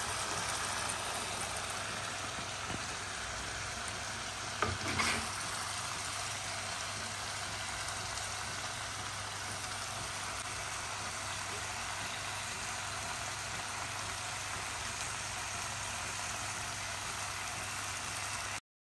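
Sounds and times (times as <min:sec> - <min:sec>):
curry sizzling in a pan: 0:00.0 - 0:18.6.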